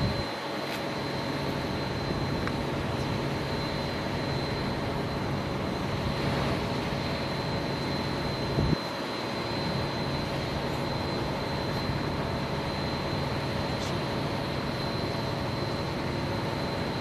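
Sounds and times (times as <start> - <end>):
high-pitched whine: 0.0 - 17.0
idling truck drone: 0.0 - 17.0
fire truck engine idling: 9.4 - 17.0.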